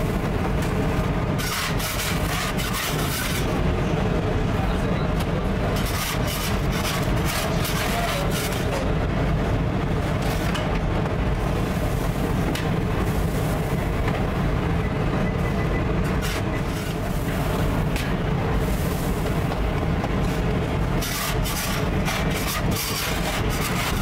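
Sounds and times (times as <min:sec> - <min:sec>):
oven machinery humming: 0:00.0 - 0:24.0.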